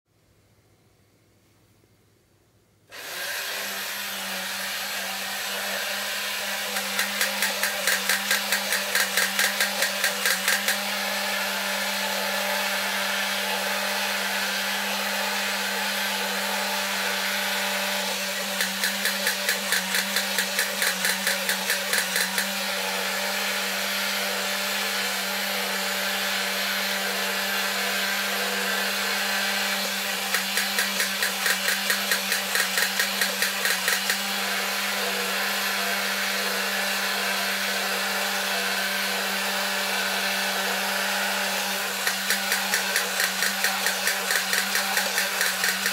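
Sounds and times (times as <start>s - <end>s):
toy robot motor whirring: 6.6s - 11.0s, 18.0s - 22.8s, 29.6s - 34.6s, 40.5s - 45.9s
toy gun rattling clicks: 6.7s - 10.8s, 18.6s - 22.5s, 30.3s - 34.2s, 42.0s - 45.9s.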